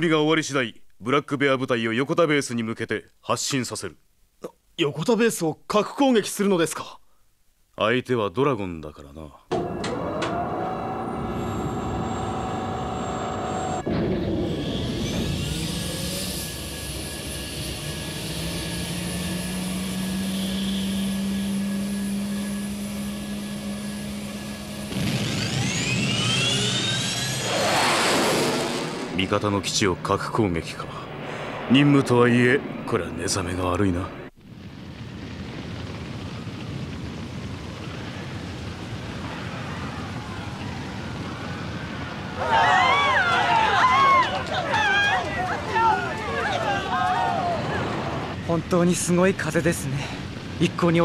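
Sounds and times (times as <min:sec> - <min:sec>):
jet engines whining: 0:09.5 - 0:34.4, 0:37.6 - 0:51.0
fire rumbling: 0:10.0 - 0:51.0.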